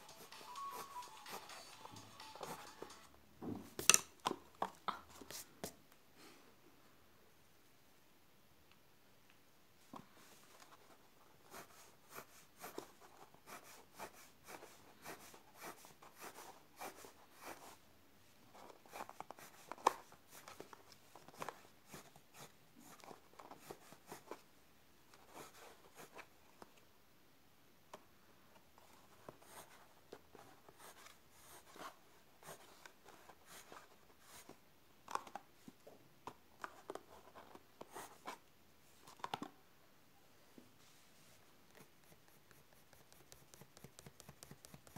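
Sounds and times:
pencil scratching on paper: 11.4 - 17.8, 21.9 - 24.4, 41.7 - 44.9.

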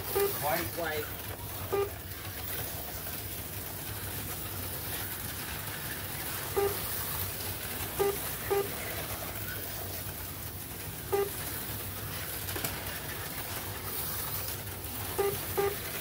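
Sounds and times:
slot cars whirring: 0.0 - 16.0
short electronic beeps: 0.1 - 0.4, 1.7 - 2.0, 6.6 - 6.8, 8.0 - 8.7, 11.1 - 11.4, 15.2 - 15.8.

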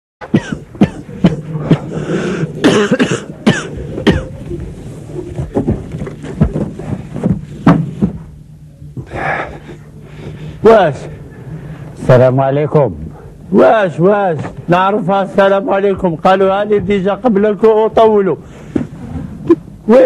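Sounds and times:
low hum: 0.2 - 13.6
man coughing: 0.3 - 4.4.

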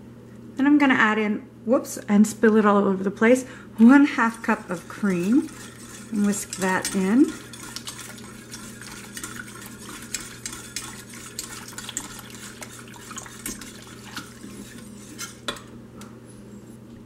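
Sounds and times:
wire whisk ticking against pot: 4.2 - 15.6.

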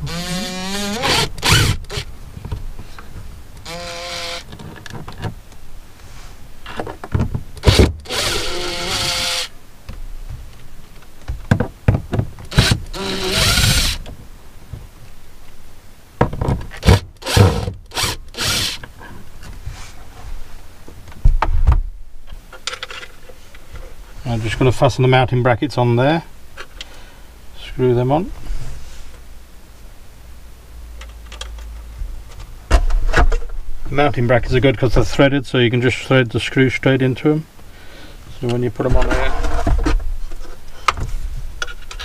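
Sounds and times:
cordless drill spinning up: 0.1 - 2.0, 3.7 - 4.5, 8.0 - 9.5, 12.6 - 14.0, 17.2 - 18.8.

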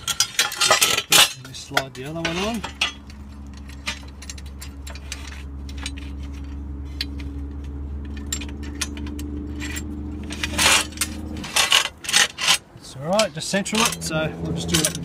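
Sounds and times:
low machine hum: 0.0 - 11.9
metal rail scraping: 0.0 - 15.0.

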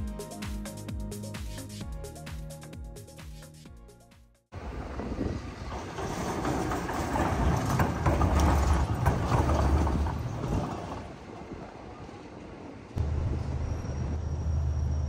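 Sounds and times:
moving train rumble and clatter: 4.6 - 15.0.

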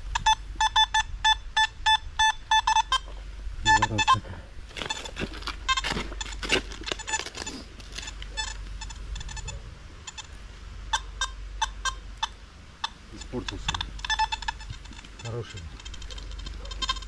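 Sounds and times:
metal detector beeping: 0.0 - 17.0
shovel scraping into soil: 4.7 - 8.3.

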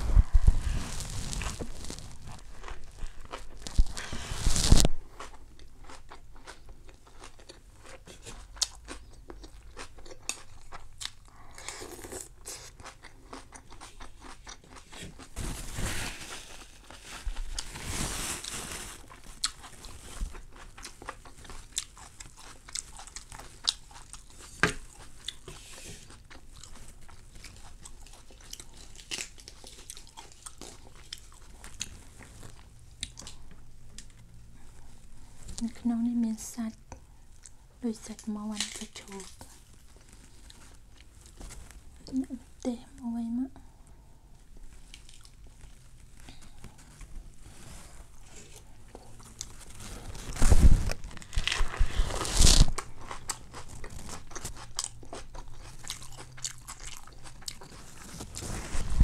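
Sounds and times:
rustling: 0.0 - 5.0, 14.9 - 20.5, 38.6 - 42.6, 44.6 - 54.6, 57.0 - 59.0
crunching and chewing food: 0.0 - 59.0.

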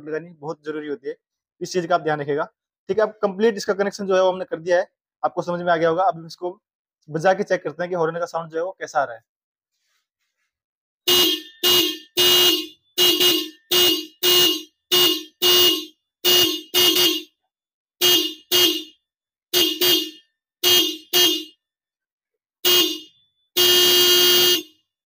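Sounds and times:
electric horns beeping: 11.1 - 17.4, 18.0 - 21.6, 22.6 - 24.7.

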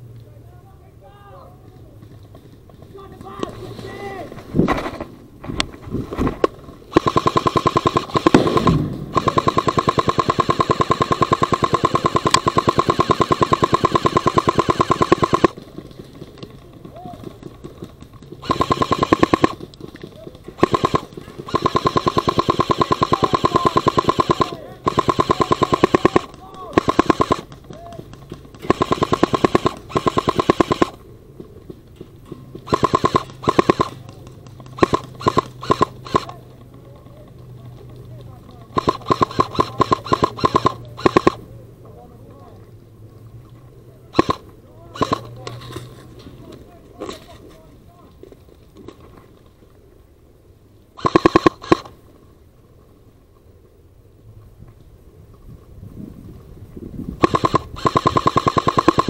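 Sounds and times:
airsoft gun firing full auto: 6.4 - 15.6, 18.4 - 19.7, 20.6 - 31.0, 32.6 - 36.4, 38.7 - 41.4, 44.1 - 45.5, 51.0 - 52.0, 57.2 - 59.0.

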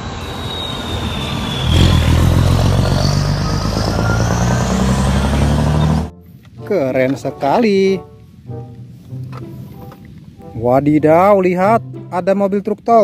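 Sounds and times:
diesel truck engine running: 0.3 - 6.1.

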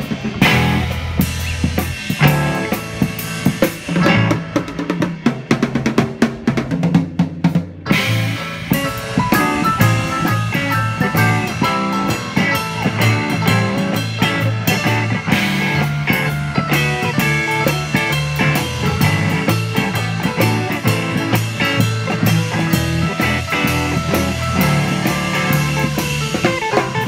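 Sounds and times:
drum kit strokes: 0.0 - 27.0
live band playing: 0.0 - 27.0.

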